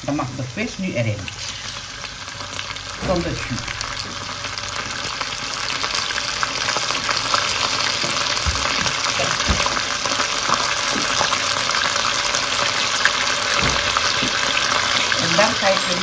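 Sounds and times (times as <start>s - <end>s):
fish sizzling in hot oil: 0.0s - 16.0s
soft low thumps: 3.0s - 4.3s.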